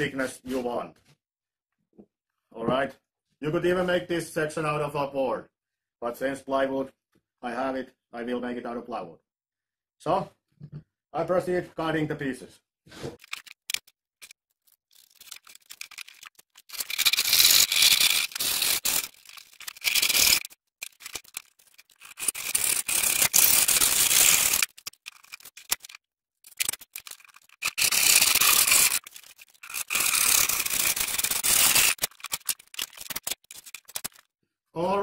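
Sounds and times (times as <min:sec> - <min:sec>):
handsaw cutting plywood: 0:16.8 - 0:25.9, 0:26.7 - 0:34.1.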